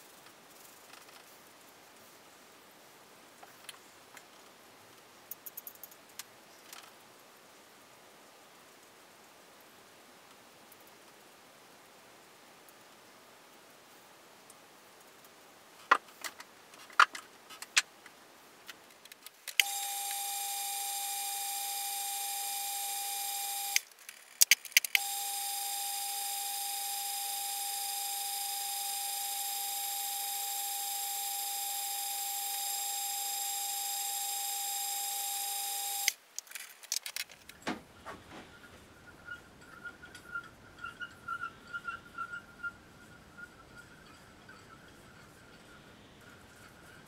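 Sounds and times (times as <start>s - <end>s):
metal parts clicking and knocking: 23.8s - 25.0s, 36.3s - 37.8s.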